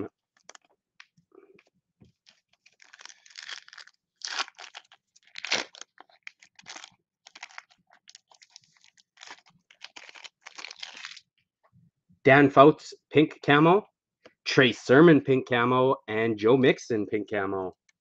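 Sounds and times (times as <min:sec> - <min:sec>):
foil wrapper crinkling and tearing: 0:02.2 - 0:11.3.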